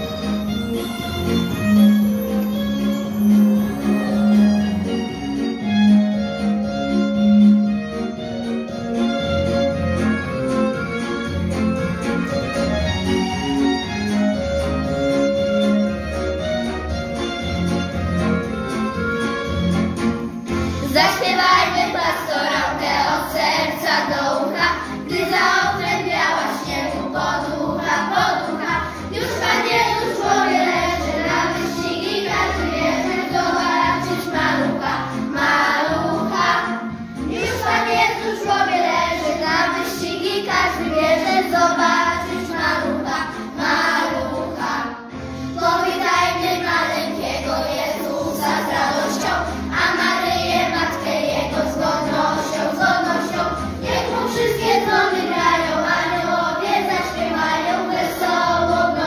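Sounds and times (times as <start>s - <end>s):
instrumental backing music: 0.0s - 59.0s
children singing in unison: 20.8s - 59.0s.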